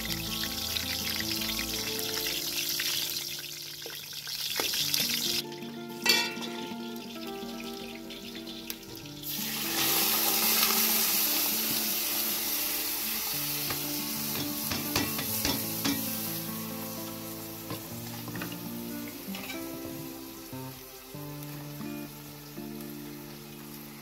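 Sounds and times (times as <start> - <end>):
hot oil sizzling: 0.0 - 24.0
ladle clinking on pot: 6.0 - 6.6, 14.3 - 16.1.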